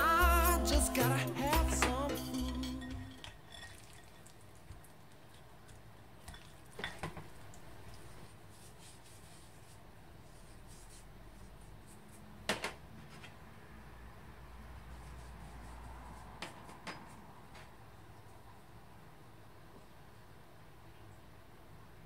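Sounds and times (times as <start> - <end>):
utensils knocking on glass bowl: 1.5 - 4.3.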